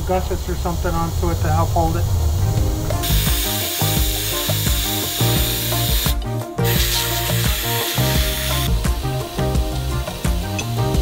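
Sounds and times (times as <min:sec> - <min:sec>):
background music: 0:01.8 - 0:11.0
pneumatic air ratchet whirring: 0:03.0 - 0:11.0.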